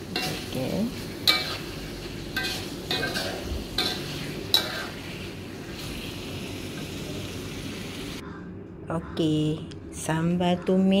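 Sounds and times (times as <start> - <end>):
food sizzling: 0.0 - 8.2
spatula scraping a wok: 0.1 - 5.8.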